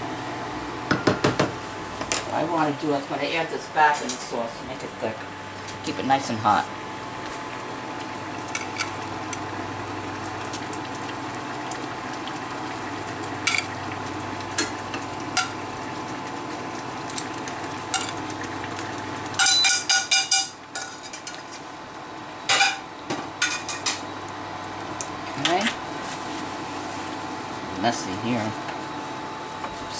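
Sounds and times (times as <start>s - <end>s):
sauce sizzling in frying pan: 7.2s - 19.4s.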